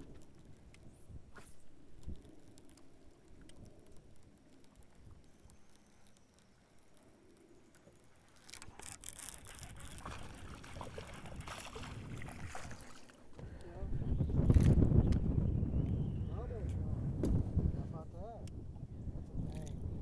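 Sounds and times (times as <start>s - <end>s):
small pattering clicks: 0.0s - 12.4s
water lapping and splashing: 0.0s - 13.6s.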